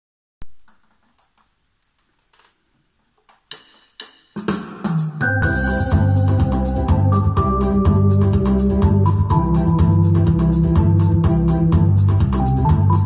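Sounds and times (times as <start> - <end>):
keyboard accompaniment with bass line: 5.1 - 13.0.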